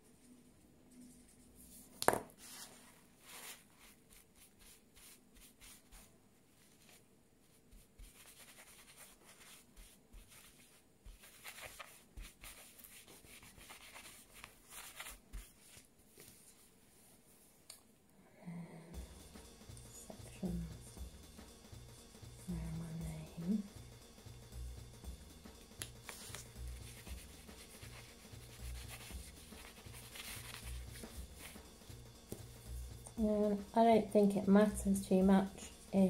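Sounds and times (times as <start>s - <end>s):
tissue rubbing on metal foil: 1.0s - 7.0s, 7.7s - 15.8s, 25.9s - 31.8s
pen set down on table: 2.0s - 2.3s.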